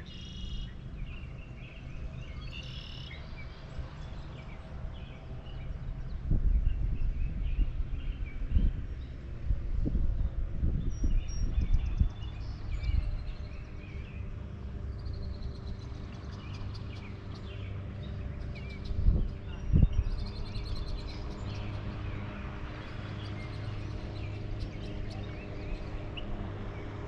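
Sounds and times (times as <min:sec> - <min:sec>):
small birds chirping: 0:10.8 - 0:27.0.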